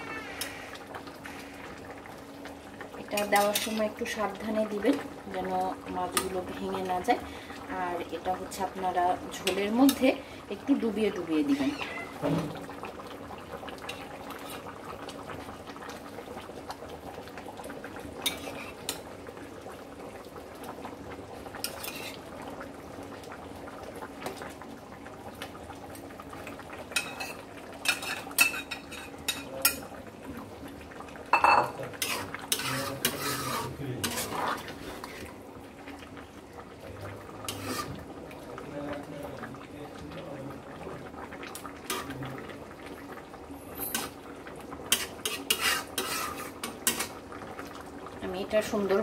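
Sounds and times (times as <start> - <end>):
spatula scraping plate and metal pot: 18.2 - 18.8, 31.4 - 35.2, 37.5 - 38.0, 44.9 - 47.1.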